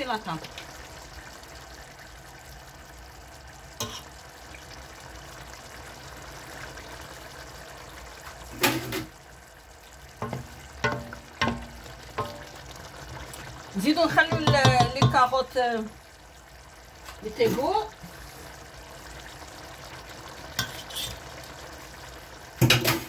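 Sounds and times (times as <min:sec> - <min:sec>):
wooden spoon stirring in pot: 0:10.1 - 0:15.4
spoon knocking against pot: 0:10.2 - 0:12.5, 0:14.2 - 0:15.3
hiss from simmering pot: 0:17.0 - 0:23.0.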